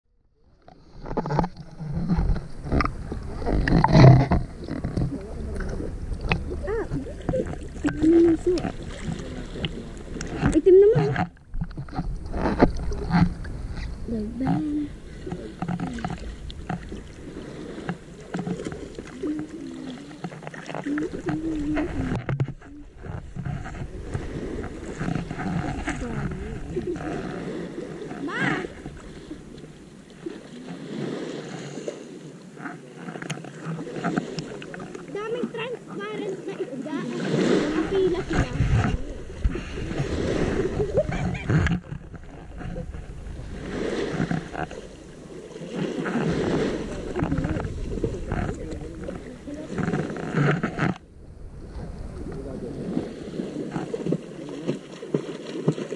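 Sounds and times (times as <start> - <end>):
water splashing and sloshing: 0.2 - 55.9
indistinct voices: 2.8 - 11.4, 12.3 - 17.0, 17.7 - 29.3, 34.2 - 43.0.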